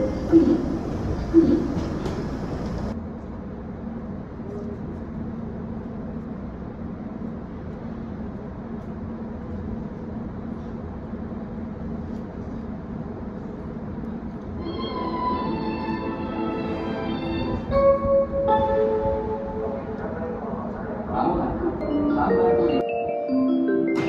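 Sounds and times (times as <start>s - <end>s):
electric train humming: 0.0s - 3.0s, 13.4s - 24.0s.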